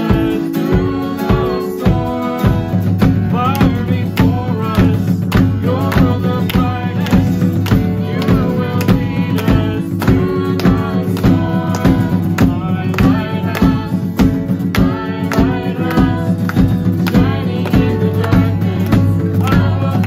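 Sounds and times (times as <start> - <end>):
drum kit beat: 0.0 - 20.0
strummed acoustic guitars: 0.0 - 20.0
voices singing together: 0.0 - 20.0.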